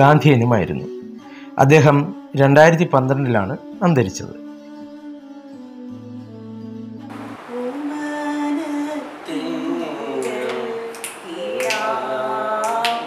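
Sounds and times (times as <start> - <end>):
instrumental background music: 0.0 - 13.0
woman singing: 7.1 - 13.0.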